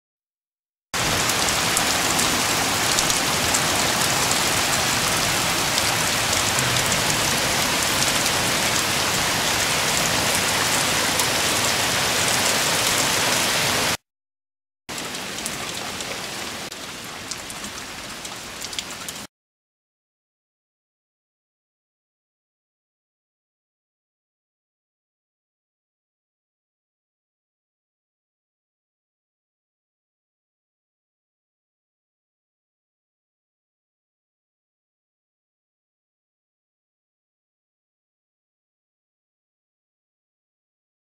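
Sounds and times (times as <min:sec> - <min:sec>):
heavy rain falling: 0:01.0 - 0:14.0, 0:14.9 - 0:19.3.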